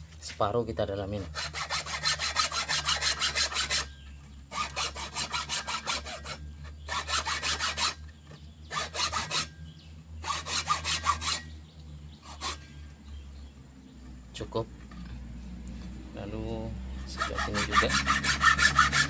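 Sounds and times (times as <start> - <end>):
hacksaw cutting wood: 1.2 - 3.9, 4.5 - 8.1, 8.7 - 9.5, 10.2 - 11.5, 12.2 - 12.6, 17.1 - 19.0.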